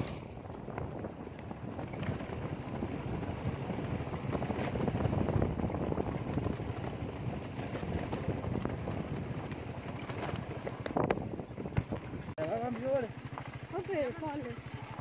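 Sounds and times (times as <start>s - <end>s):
wind buffeting microphone: 0.0s - 12.7s
motorcycle on dirt road: 0.0s - 15.0s.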